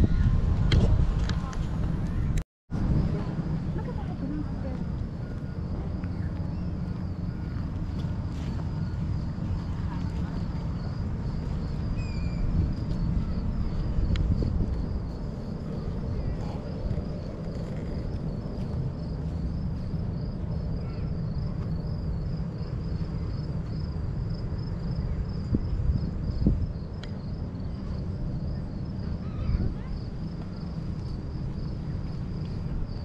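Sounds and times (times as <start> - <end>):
continuous low rumble: 0.0 - 33.0
crickets chirping: 2.1 - 33.0.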